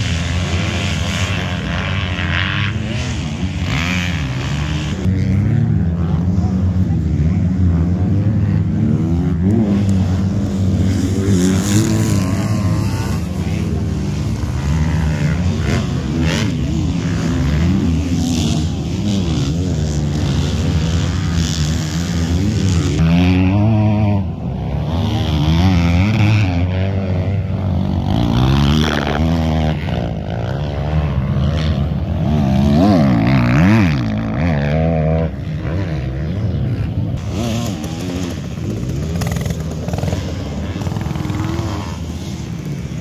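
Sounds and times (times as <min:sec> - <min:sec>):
motocross bike engines revving: 0:00.0 - 0:43.0.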